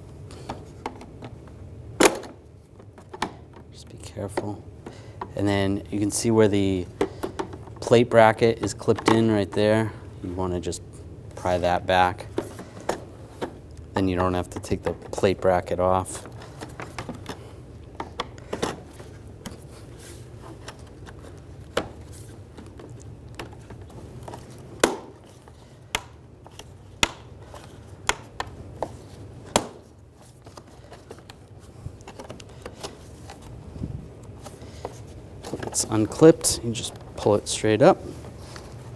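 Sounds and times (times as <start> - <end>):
steady low hum: 0.0 - 38.9
plastic clips snapping: 25.9 - 27.3.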